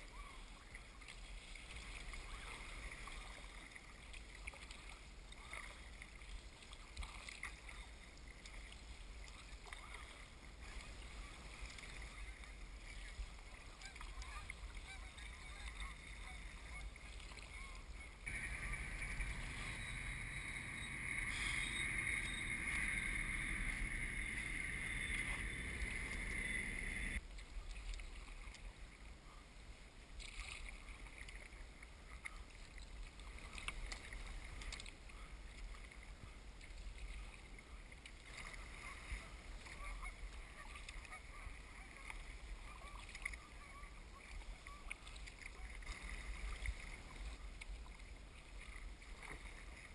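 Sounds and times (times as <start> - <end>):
water splashes and drips: 0.0 - 29.1, 30.2 - 49.9
paddle strokes in water: 0.0 - 49.9
water lapping at hull: 0.0 - 49.9
steady rushing noise: 18.3 - 27.2.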